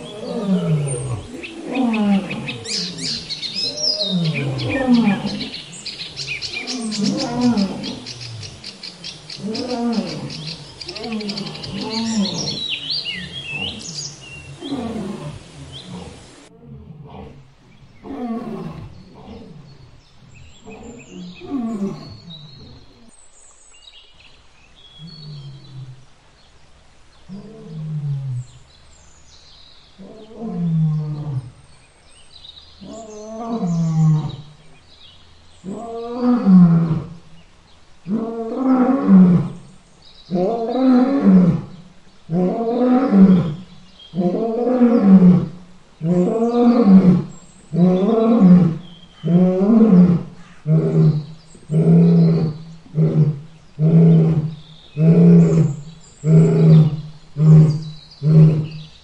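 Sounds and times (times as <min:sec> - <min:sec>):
lion roaring: 0:00.0 - 0:23.1, 0:40.3 - 0:58.9.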